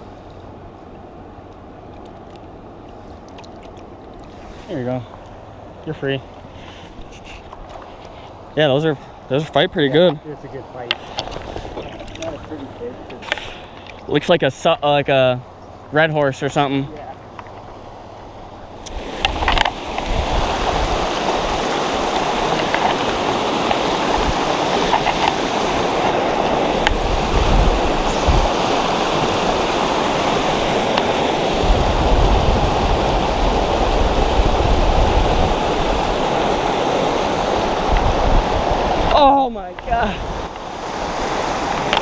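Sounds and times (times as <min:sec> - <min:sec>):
river rushing over rocks: 0:17.9 - 0:42.0.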